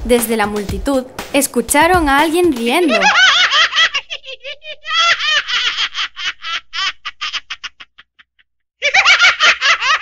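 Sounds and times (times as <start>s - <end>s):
cartoon character laughing: 2.8s - 10.0s.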